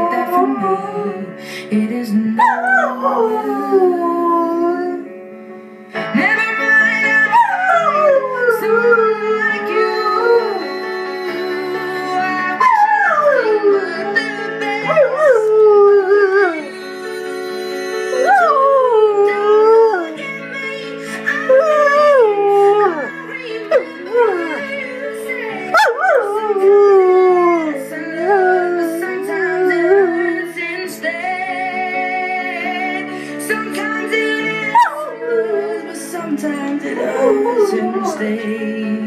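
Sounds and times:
slow song playing: 0.0s - 39.0s
dog howling: 2.4s - 5.0s, 7.0s - 16.8s, 18.0s - 20.5s, 21.3s - 30.4s, 34.6s - 36.0s, 36.8s - 38.6s.

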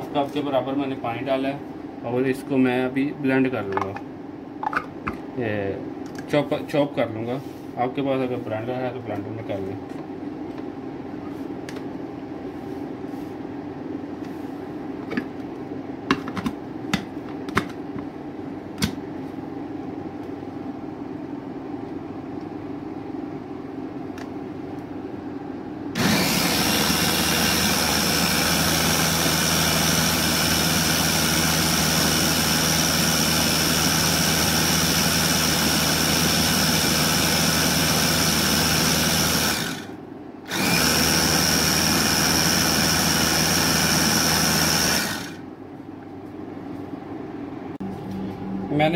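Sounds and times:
food chopper motor running: 26.0s - 45.4s.

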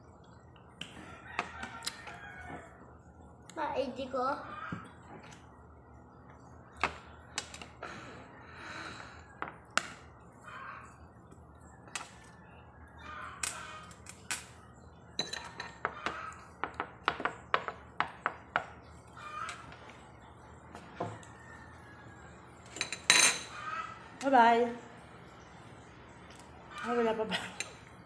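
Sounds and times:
metal spoon clinking on a plate: 15.2s - 15.9s, 22.7s - 23.6s.

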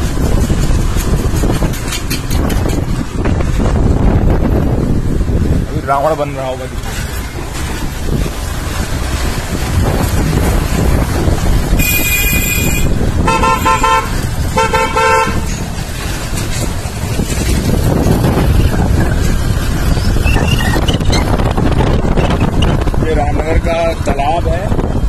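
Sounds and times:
motorcycle engine rumble: 0.0s - 25.0s
wind noise: 0.0s - 25.0s
vehicle horns honking: 11.7s - 15.6s.

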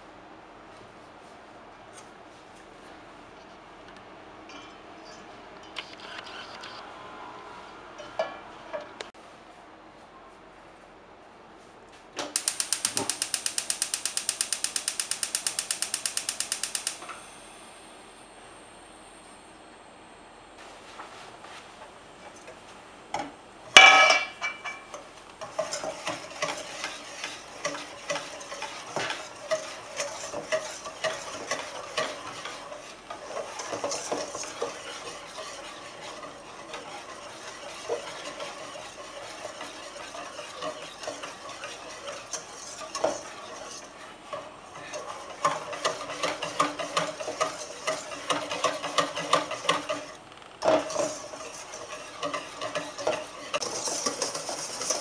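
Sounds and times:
whisk beating in metal bowl: 12.4s - 17.1s, 23.8s - 55.0s
metallic clang with ringing: 23.8s - 24.9s.

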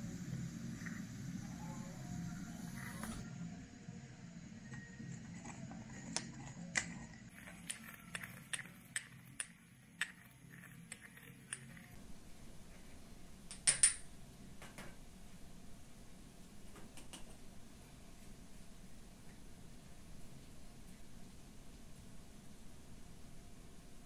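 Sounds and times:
pestle grinding in stone mortar: 5.0s - 12.0s.

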